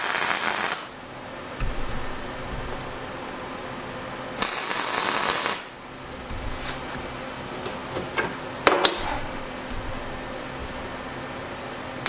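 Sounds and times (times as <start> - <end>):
welding arc: 0.0 - 1.0, 4.4 - 5.8.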